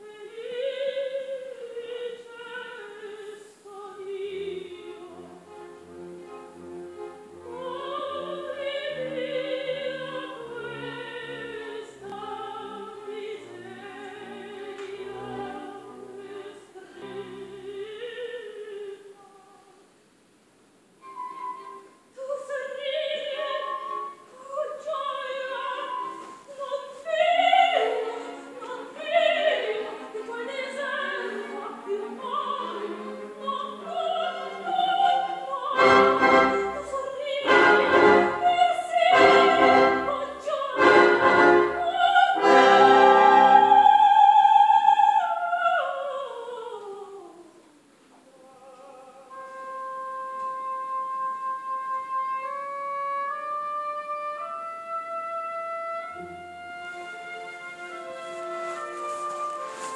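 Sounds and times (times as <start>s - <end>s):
operatic soprano singing: 0.0s - 6.5s, 7.1s - 19.9s, 21.1s - 59.9s
soft held woodwind line: 21.0s - 22.4s, 48.7s - 59.9s
orchestra playing: 27.7s - 44.0s, 49.5s - 59.9s
heavy orchestral chords: 35.8s - 38.5s, 39.1s - 43.8s.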